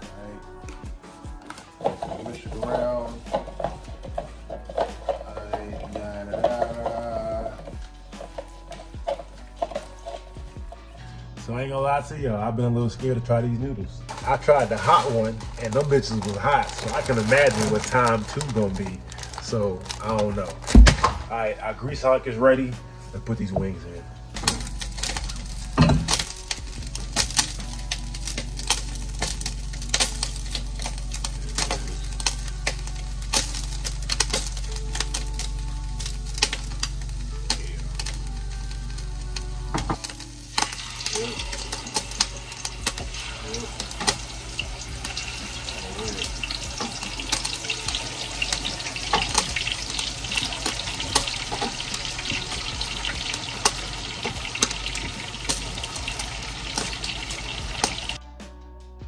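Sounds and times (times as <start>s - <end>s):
chicken deep-frying in oil: 24.4s - 39.2s, 39.9s - 58.2s.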